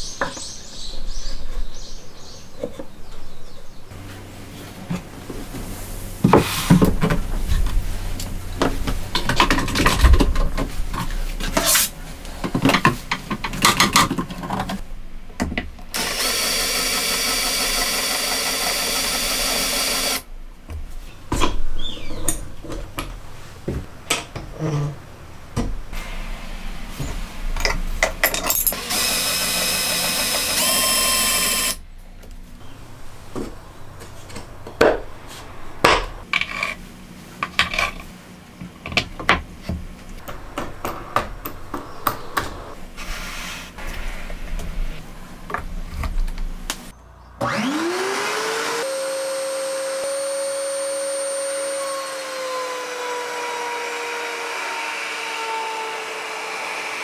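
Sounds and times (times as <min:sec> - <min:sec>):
router motor whine: 0:16.0 - 0:20.2, 0:28.8 - 0:31.8, 0:47.4 - 0:57.0.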